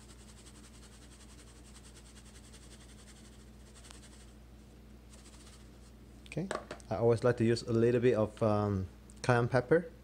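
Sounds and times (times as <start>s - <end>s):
pepper shaker ticking: 0.0s - 4.3s
low steady hum: 0.0s - 10.0s.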